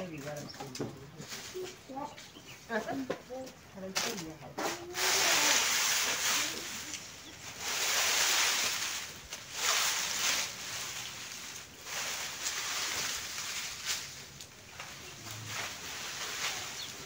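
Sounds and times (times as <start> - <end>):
dry plants rustling and crackling: 0.0 - 17.0.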